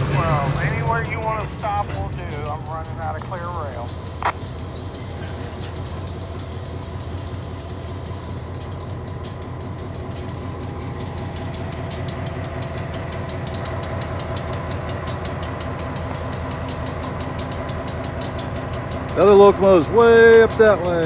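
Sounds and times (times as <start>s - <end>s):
diesel locomotive engine rumble: 0.0s - 21.0s
rapid high ticking: 5.7s - 21.0s.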